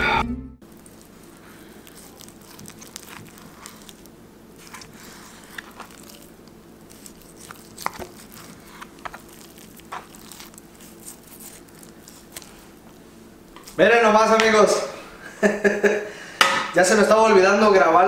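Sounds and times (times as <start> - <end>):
steady low hum: 0.0 - 18.0
raw meat being cut: 0.7 - 13.0.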